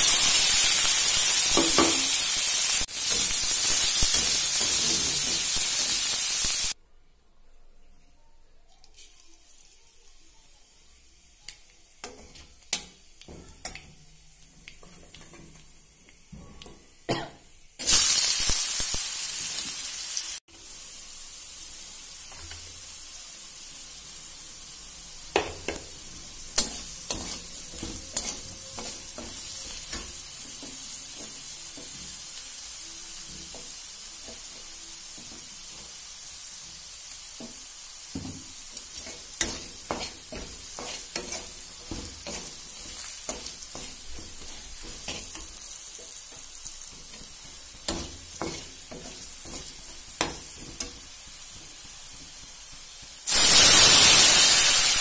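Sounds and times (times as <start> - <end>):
potatoes sizzling in hot oil: 0.0 - 6.8, 17.6 - 55.0
metal spatula scraping pan: 26.5 - 32.2, 38.9 - 51.0.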